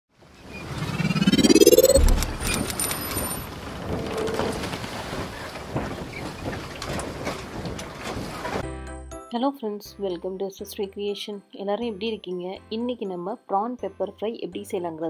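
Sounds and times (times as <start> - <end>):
rising sweep: 0.5 - 3.0.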